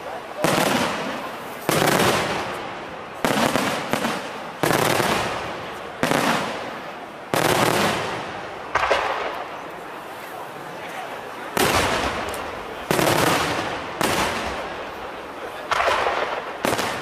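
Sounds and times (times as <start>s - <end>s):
fireworks bangs: 0.0s - 10.2s, 11.4s - 17.0s
fireworks crackle: 0.0s - 17.0s.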